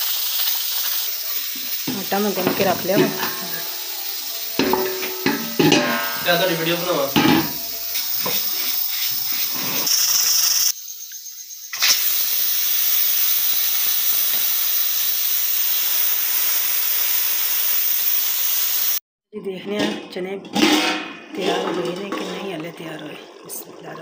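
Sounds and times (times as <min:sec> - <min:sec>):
pressure cooker hissing: 0:00.0 - 0:19.0.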